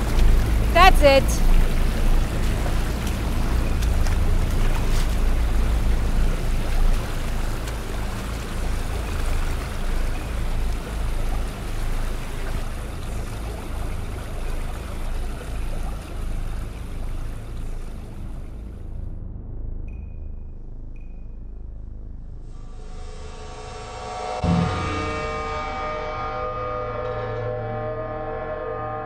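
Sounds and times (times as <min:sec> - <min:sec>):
rushing water: 0:00.0 - 0:19.0.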